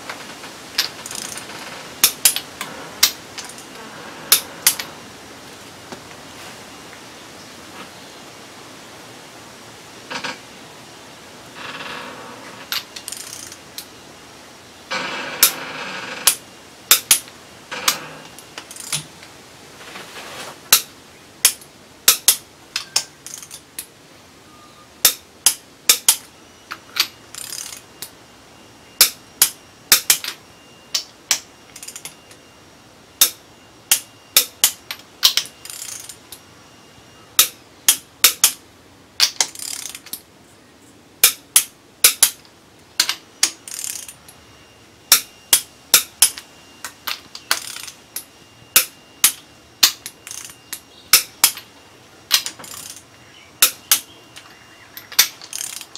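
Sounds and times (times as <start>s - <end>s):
scraping rustle: 0.0s - 8.1s, 17.7s - 20.8s
hand ratchet clicking: 0.8s - 1.4s, 13.0s - 13.6s, 18.6s - 19.0s, 21.4s - 23.6s, 27.3s - 27.8s, 33.2s - 36.2s, 39.2s - 40.2s, 43.0s - 44.2s, 48.8s - 51.6s, 52.3s - 53.0s, 55.1s - 55.9s.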